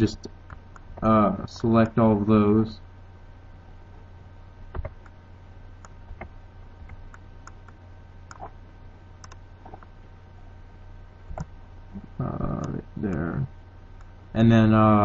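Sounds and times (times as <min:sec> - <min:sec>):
steady low hum: 0:00.0 - 0:15.0
mouse and keyboard clicks: 0:05.8 - 0:08.5.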